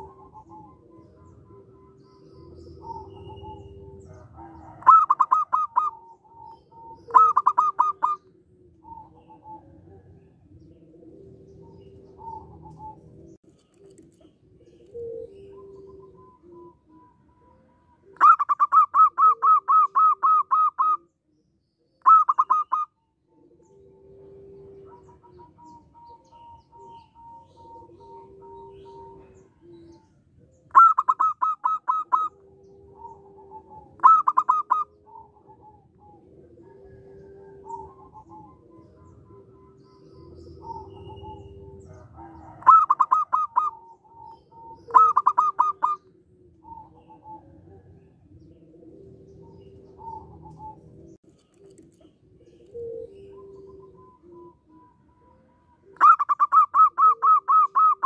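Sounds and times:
dove staccato cooing: 0.0s - 21.2s, 21.9s - 58.0s
low drawn-out coos: 1.2s - 5.2s, 35.1s - 44.0s.

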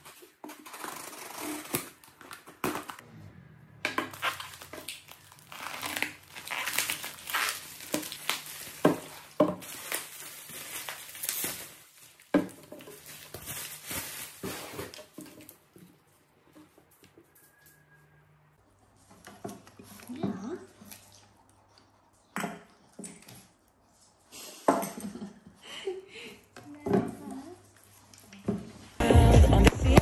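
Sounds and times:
packaging rustling and crinkling: 4.1s - 15.6s.

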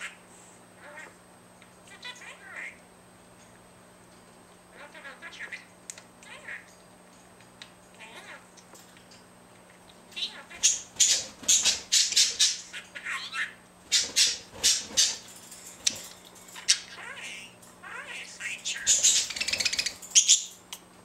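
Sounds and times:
budgerigar chattering: 10.2s - 15.2s, 16.6s - 20.5s.

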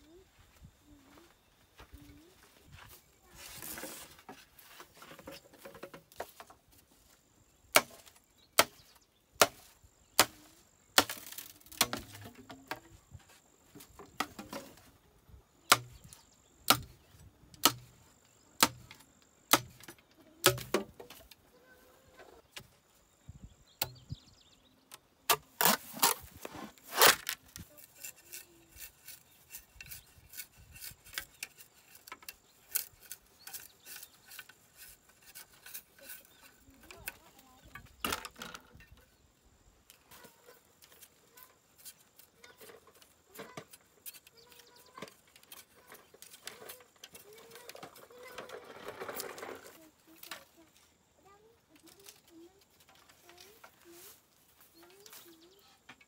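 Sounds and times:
knife chopping bamboo: 7.7s - 8.8s, 9.4s - 12.4s, 15.7s - 16.0s, 16.7s - 16.9s, 17.6s - 17.9s, 18.6s - 20.9s.

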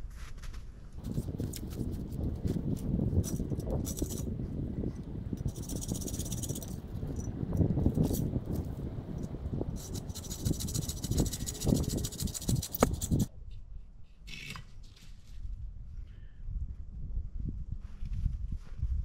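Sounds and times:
dry branches rustling and scraping: 0.0s - 13.3s
branches rustling and crackling: 0.3s - 4.5s.

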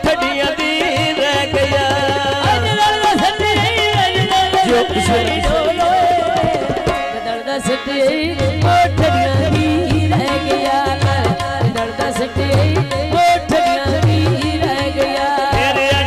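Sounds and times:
hand drums beating: 0.0s - 7.8s, 8.4s - 16.0s
woman singing folk song: 4.6s - 15.6s.

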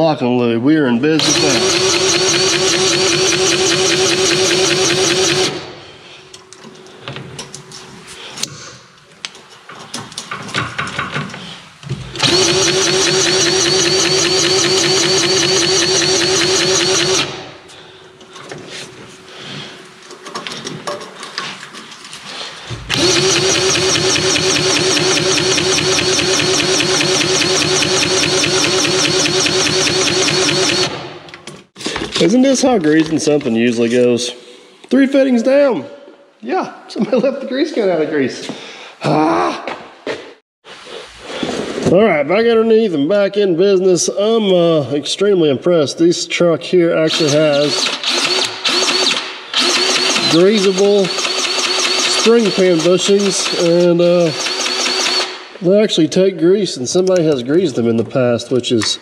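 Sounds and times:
grease gun motor whirring: 1.2s - 5.6s, 12.2s - 17.4s, 22.9s - 31.0s, 47.1s - 55.3s
rattling and handling noise: 18.1s - 23.1s.

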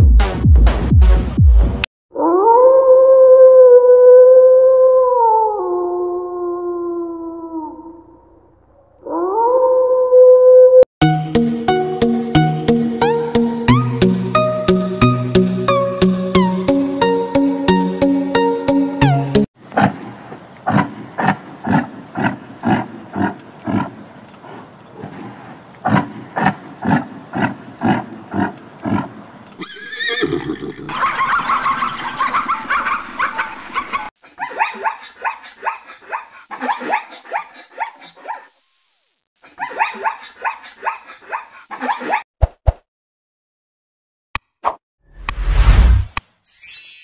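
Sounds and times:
rhythmic animal grunting: 19.7s - 29.4s.

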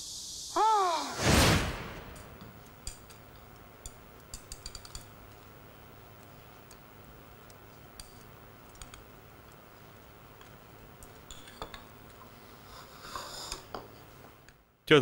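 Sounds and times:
chopsticks clicking against bowls: 2.9s - 5.5s, 7.4s - 9.6s.

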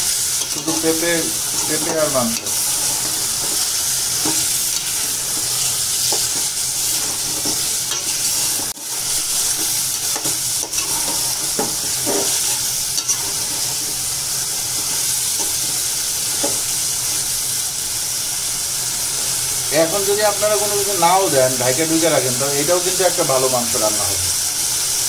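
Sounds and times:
chicken sizzling in oil: 0.0s - 25.0s
spatula scraping pot: 0.3s - 16.8s.

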